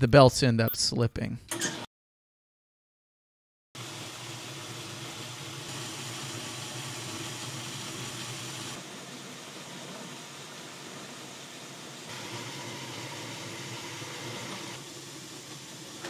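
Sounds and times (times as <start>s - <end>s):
metal lathe motor humming: 11.9s - 16.0s.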